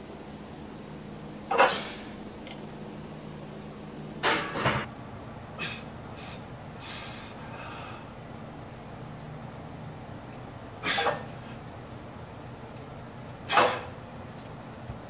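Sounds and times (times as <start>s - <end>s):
fans humming: 0.0s - 15.0s
short hissing sounds: 1.5s - 2.2s, 5.6s - 7.4s.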